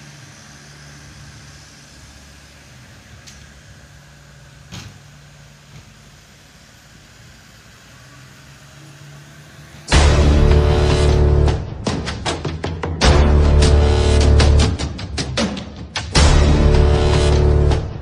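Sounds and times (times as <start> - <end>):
diesel truck engine idling: 0.0 - 12.0
loud music: 9.9 - 18.0.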